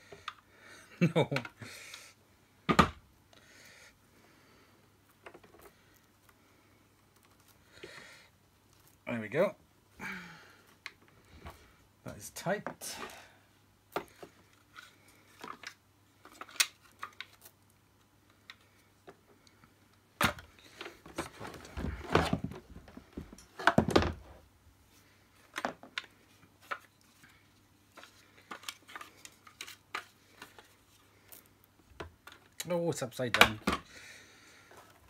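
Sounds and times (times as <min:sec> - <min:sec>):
plastic parts clicking and knocking: 0:01.2 - 0:01.6, 0:20.2 - 0:24.2, 0:28.0 - 0:30.8, 0:31.4 - 0:33.9.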